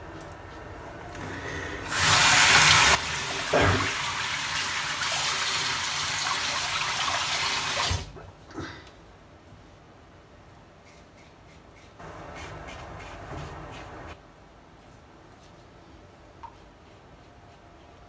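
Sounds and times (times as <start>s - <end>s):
tap water running into sink: 1.9s - 8.1s.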